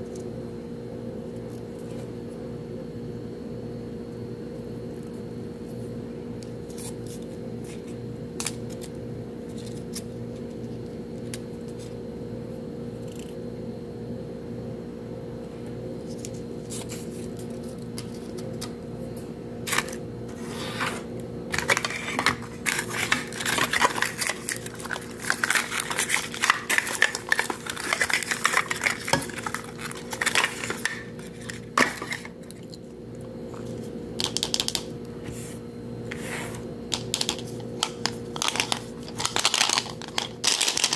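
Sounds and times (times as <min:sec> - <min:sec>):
steady low hum: 0:00.0 - 0:40.9
plastic pieces clicking and clattering: 0:21.6 - 0:32.3, 0:37.0 - 0:40.9.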